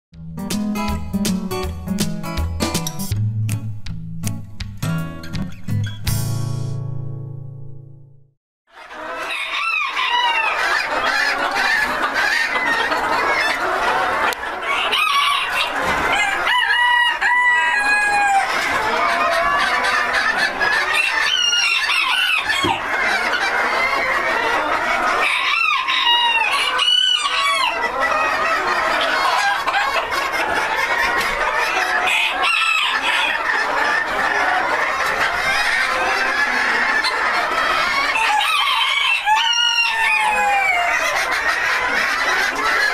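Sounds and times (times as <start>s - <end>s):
chickens clucking: 8.7s - 42.9s
roosters crowing: 8.9s - 42.9s.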